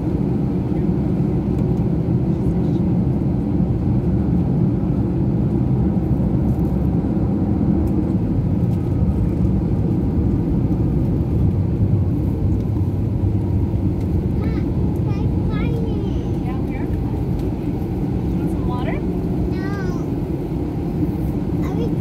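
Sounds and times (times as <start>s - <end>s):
airliner engines rumbling in cabin: 0.0s - 22.0s.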